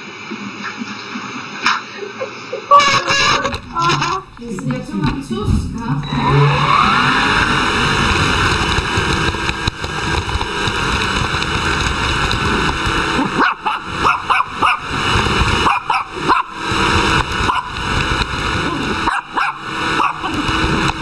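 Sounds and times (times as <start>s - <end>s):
vacuum cleaner running: 0.0s - 21.0s
small dog yipping and barking: 13.4s - 14.8s, 15.6s - 16.6s, 19.1s - 20.3s.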